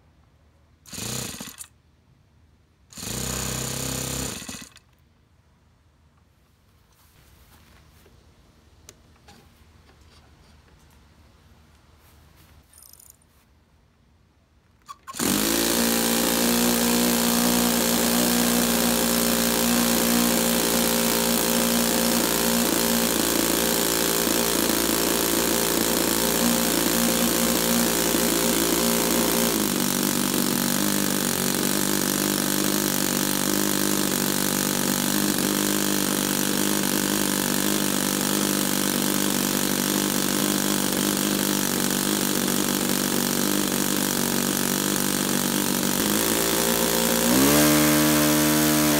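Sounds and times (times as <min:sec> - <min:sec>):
electric starter spinning: 0:00.9 - 0:01.7, 0:02.9 - 0:05.0, 0:14.8 - 0:48.9
model airplane engine running: 0:15.1 - 0:48.9.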